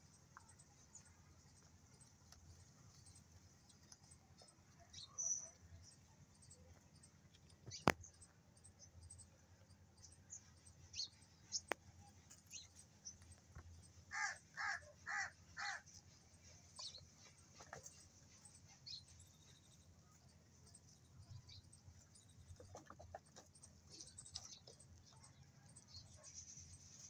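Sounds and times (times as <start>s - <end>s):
crow cawing: 14.1s - 15.8s.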